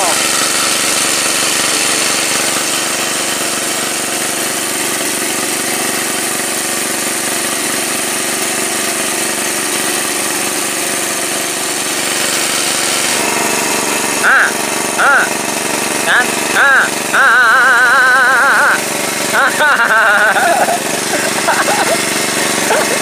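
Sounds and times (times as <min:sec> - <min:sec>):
small petrol engine running: 0:00.0 - 0:23.0.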